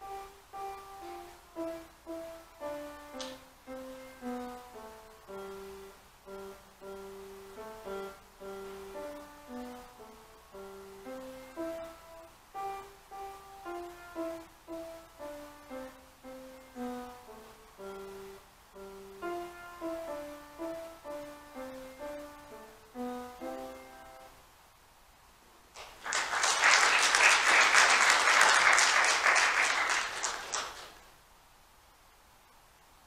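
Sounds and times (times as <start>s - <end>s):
slow piano notes: 0.0s - 24.5s
people applauding: 25.8s - 31.1s.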